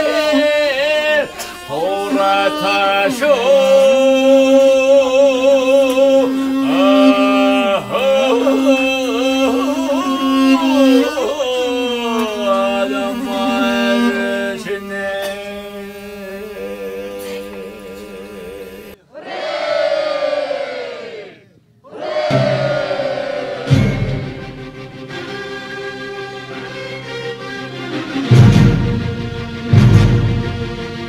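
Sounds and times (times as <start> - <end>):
old man singing long held notes: 0.0 - 19.0
group of voices: 0.0 - 24.5
low sustained drone note: 1.2 - 19.0.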